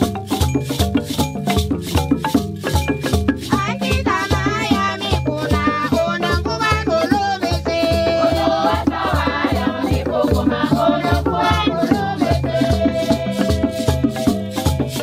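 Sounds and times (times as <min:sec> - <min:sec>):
shaken rattles: 0:00.0 - 0:05.6
drums beating: 0:00.0 - 0:15.0
choir singing: 0:07.4 - 0:14.2.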